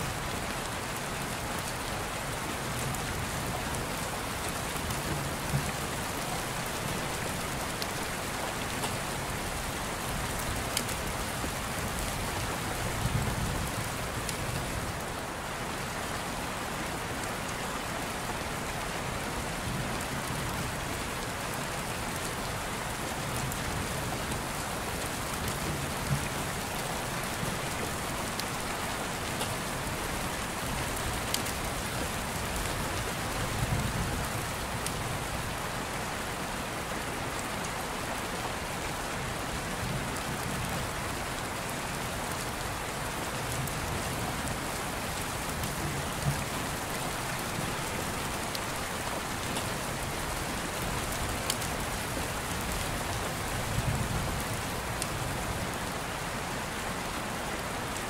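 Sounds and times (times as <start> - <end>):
steady rain hiss: 0.0 - 58.0.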